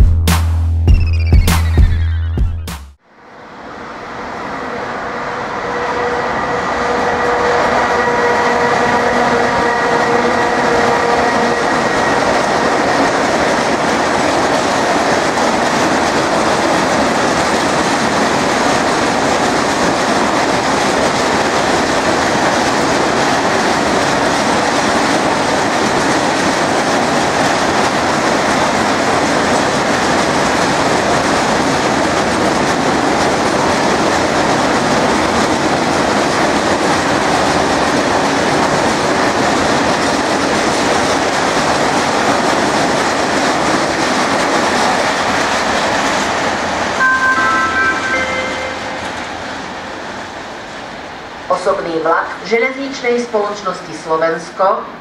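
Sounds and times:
locomotive whine: 0:01.2 - 0:13.1, 0:46.4 - 0:50.6.

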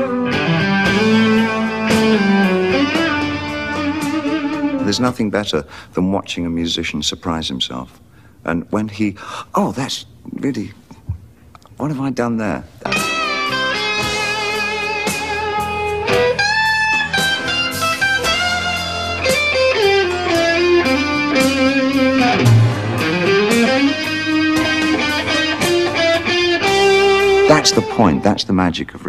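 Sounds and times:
electric guitar lead: 0:00.0 - 0:05.1, 0:12.8 - 0:28.5.

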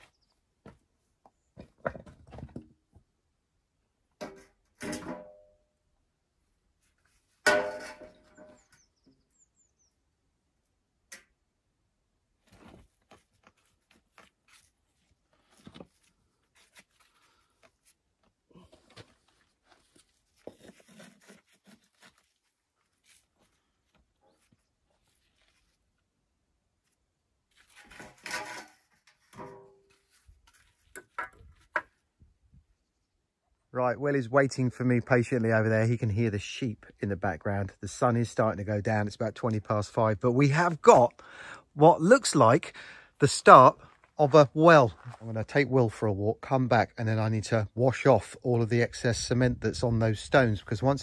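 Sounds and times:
birds chirping: 0:08.4 - 0:10.3.

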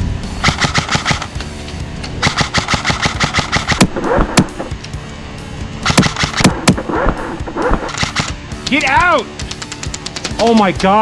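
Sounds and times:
airsoft rifle firing bursts: 0:00.4 - 0:01.4, 0:02.2 - 0:04.5, 0:05.8 - 0:06.8, 0:07.9 - 0:08.4.

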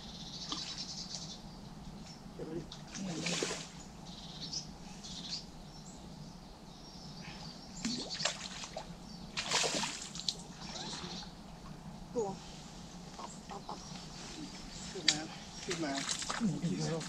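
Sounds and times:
fish splashing at surface: 0:09.4 - 0:11.0.

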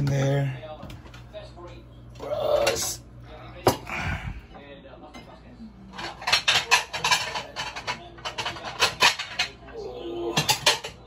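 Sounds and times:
plates and cutlery clattering: 0:05.9 - 0:11.0.

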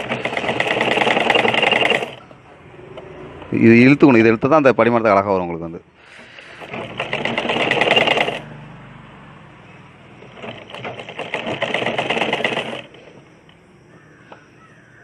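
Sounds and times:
sewing machine stitching: 0:00.0 - 0:02.3, 0:06.2 - 0:08.5, 0:10.2 - 0:13.2.

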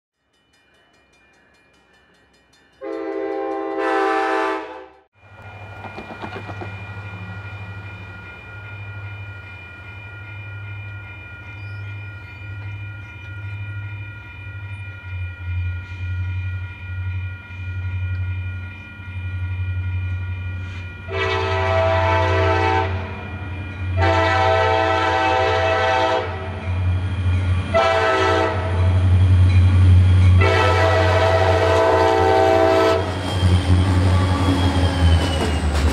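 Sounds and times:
crossing bell ringing: 0:00.2 - 0:04.2, 0:04.9 - 0:35.9
diesel locomotives rumbling: 0:00.8 - 0:35.9
locomotive air horn blasts: 0:02.8 - 0:05.1, 0:21.1 - 0:23.2, 0:23.9 - 0:26.6, 0:27.7 - 0:28.9, 0:30.4 - 0:33.2.

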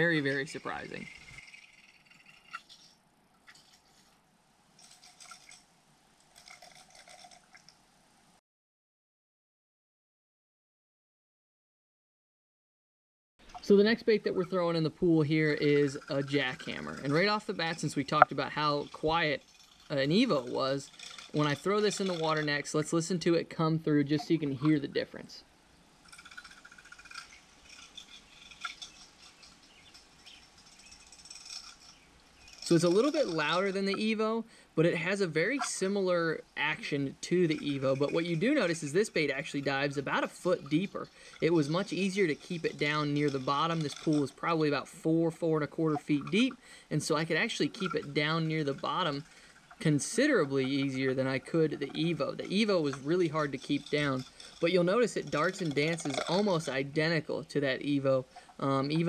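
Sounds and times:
underwater rattling tick: 0:00.0 - 0:04.2, 0:04.8 - 0:07.8, 0:13.4 - 0:23.4, 0:26.0 - 0:59.0.

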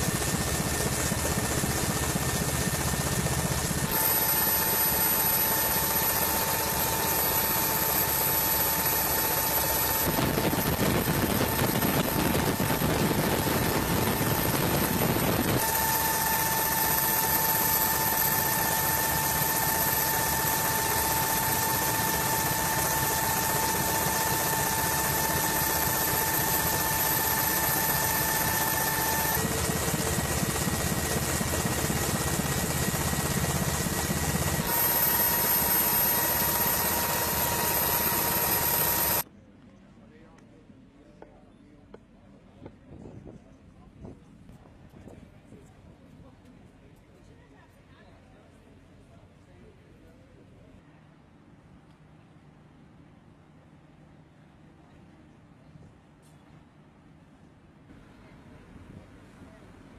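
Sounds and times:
aircraft engine drone: 0:00.0 - 0:39.2
high whine: 0:00.2 - 0:39.2.

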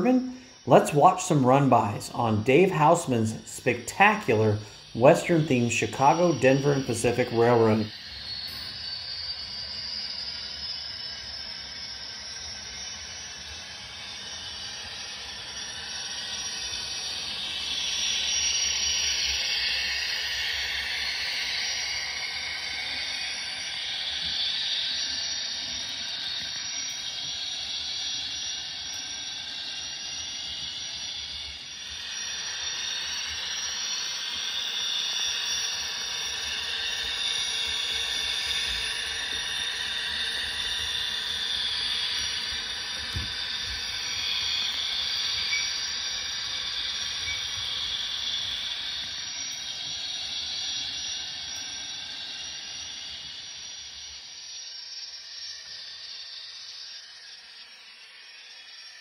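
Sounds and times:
model train turbine hiss: 0:00.0 - 0:59.0.

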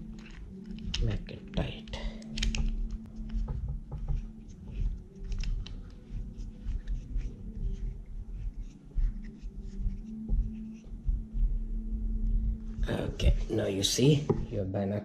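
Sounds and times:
plastic scratching: 0:00.0 - 0:14.6
steady low hum: 0:01.8 - 0:14.6
thumb screw clicks: 0:01.9 - 0:03.0.

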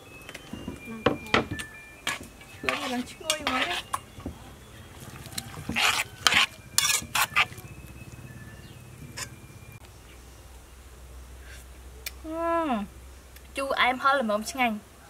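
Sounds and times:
spoon stirring liquid in pot: 0:02.0 - 0:07.7
spoon clinking against pot: 0:05.2 - 0:07.6.

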